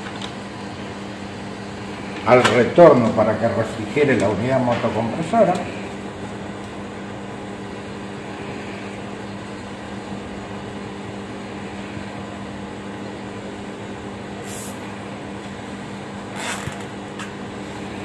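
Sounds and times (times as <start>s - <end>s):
machine hum: 0.0s - 18.0s
cable tie zipping rasp: 16.3s - 16.9s.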